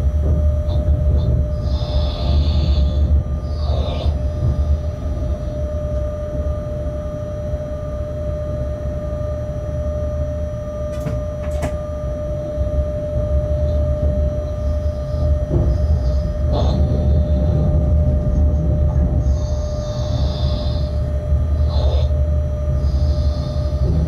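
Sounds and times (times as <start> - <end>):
locomotive cab rumble: 13.2 - 24.0.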